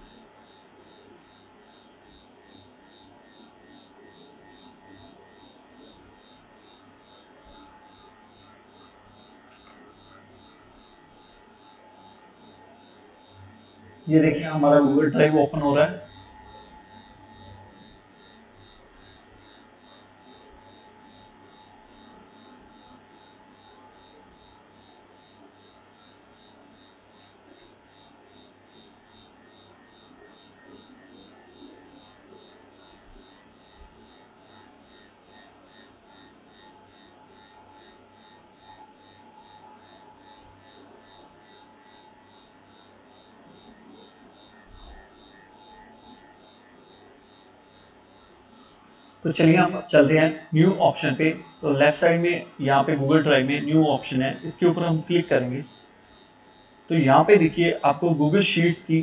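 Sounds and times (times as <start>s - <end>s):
electronic hum and hiss: 0.0s - 59.0s
high-pitched electronic pulsing: 13.3s - 19.2s, 49.3s - 59.0s
faint background hiss: 13.4s - 17.9s, 49.2s - 55.7s, 56.9s - 59.0s.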